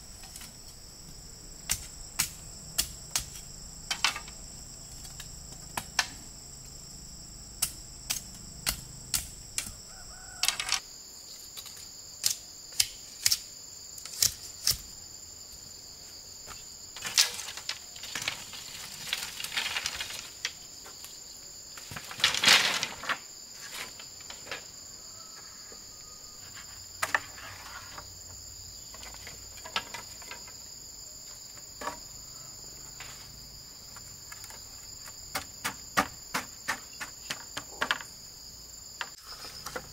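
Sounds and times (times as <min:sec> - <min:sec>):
high-pitched insect drone: 0:00.0 - 0:11.5.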